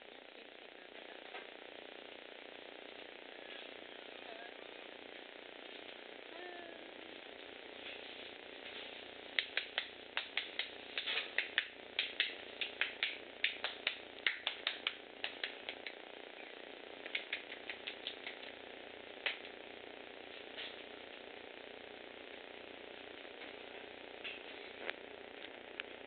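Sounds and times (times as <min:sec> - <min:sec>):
sharp clicks: 0:09.3 - 0:16.0, 0:17.0 - 0:18.5.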